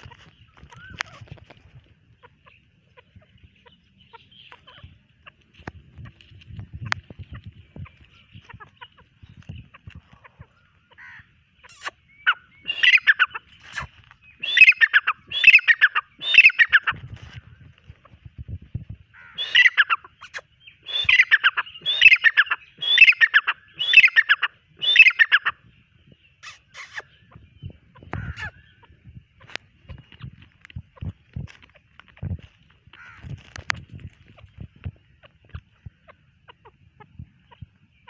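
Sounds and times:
bird calling harsh quick notes: 0:11.0 - 0:17.0, 0:19.2 - 0:25.5, 0:26.4 - 0:27.2.

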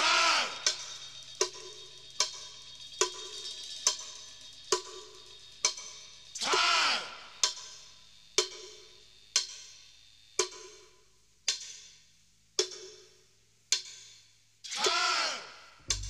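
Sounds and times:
ringing percussive strikes: 0:00.6 - 0:06.3.

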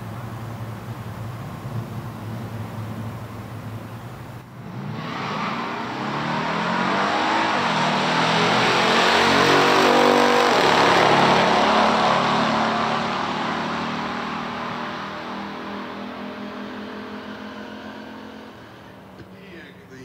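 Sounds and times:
cars racing at full throttle: 0:04.4 - 0:20.0.

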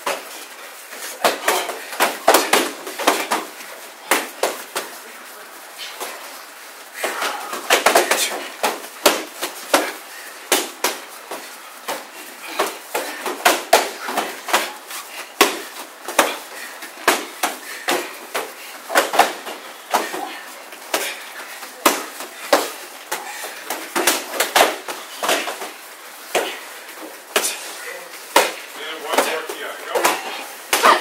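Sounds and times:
strikes slapping padded shields: 0:01.0 - 0:05.0, 0:07.0 - 0:21.2, 0:28.2 - 0:31.0.

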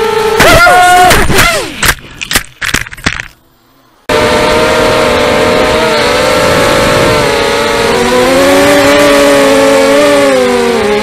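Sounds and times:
drone motors whining: 0:04.0 - 0:11.0.

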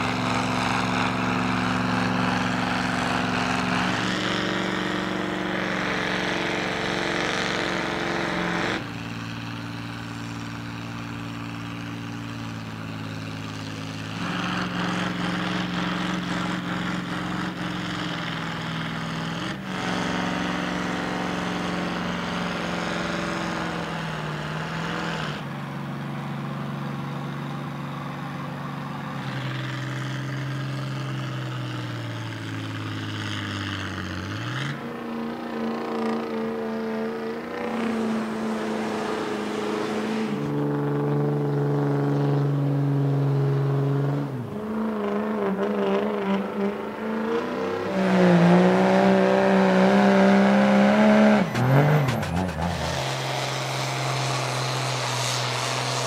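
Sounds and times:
diesel engines under heavy load: 0:00.0 - 0:56.0.

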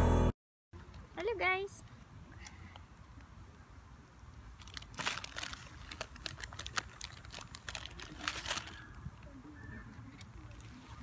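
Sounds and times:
crackling and rustling: 0:04.1 - 0:11.0.

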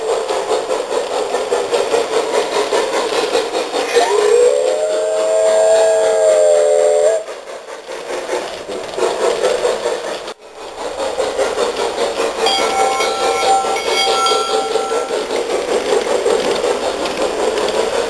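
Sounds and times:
model train running rumble: 0:00.0 - 0:18.0
high steady tones: 0:12.4 - 0:15.5
model train steam whistle chord: 0:12.5 - 0:15.4.

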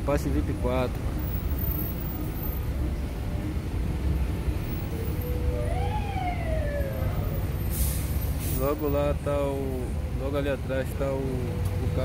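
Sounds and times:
idling traffic rumble: 0:00.0 - 0:12.0
siren wailing: 0:04.9 - 0:07.6.

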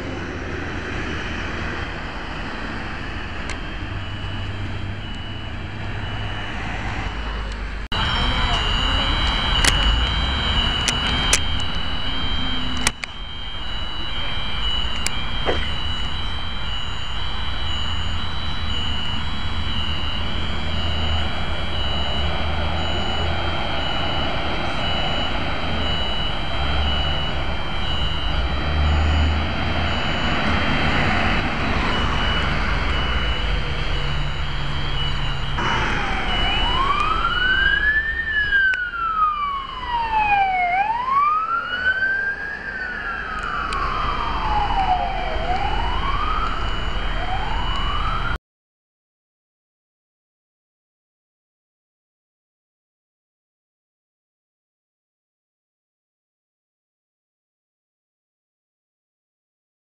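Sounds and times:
fire truck siren wailing: 0:00.0 - 0:48.4
truck engine rumble: 0:00.0 - 0:48.4
high pulsing beep: 0:01.0 - 0:48.3.

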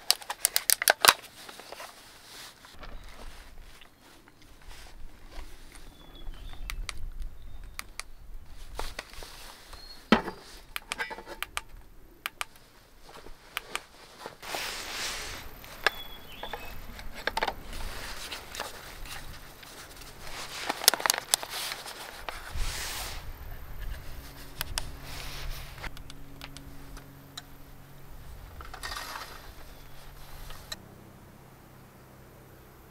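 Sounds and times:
plastic clicks: 0:00.0 - 0:01.9, 0:10.1 - 0:13.9, 0:20.6 - 0:22.4
plastic scraping: 0:12.5 - 0:26.6, 0:28.5 - 0:30.8.

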